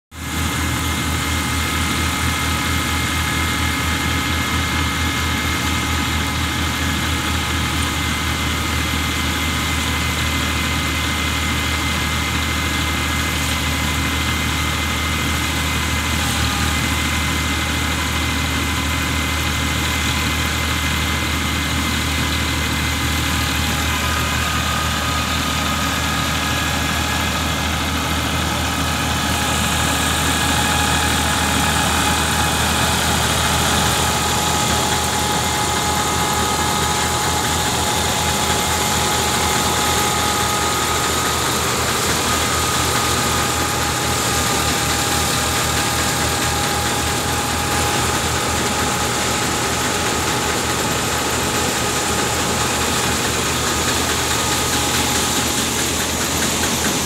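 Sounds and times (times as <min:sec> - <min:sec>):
tractor engine running: 0:00.1 - 0:57.0
threshing drum spinning: 0:19.6 - 0:57.0.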